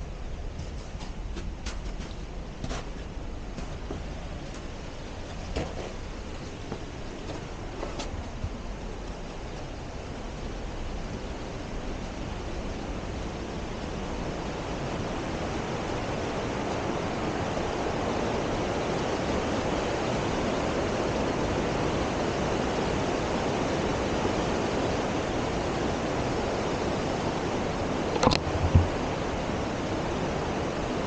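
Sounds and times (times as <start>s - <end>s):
creek and waterfall rushing: 2.4s - 31.0s
sharp knocks: 28.2s - 29.0s.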